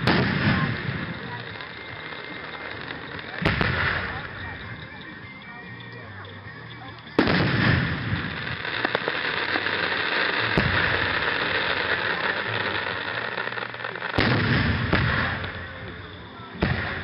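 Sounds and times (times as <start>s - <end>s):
firework shell booms: 0.0s - 1.4s, 3.4s - 4.5s, 7.2s - 9.0s, 14.2s - 15.6s.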